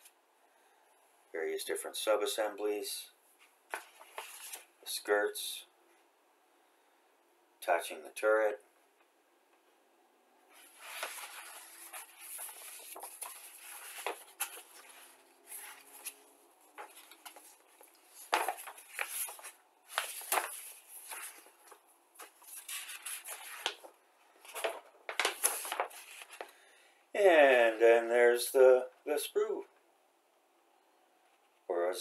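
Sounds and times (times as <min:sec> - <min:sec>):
paper rustling and crinkling: 0:03.4 - 0:04.7, 0:10.5 - 0:26.6.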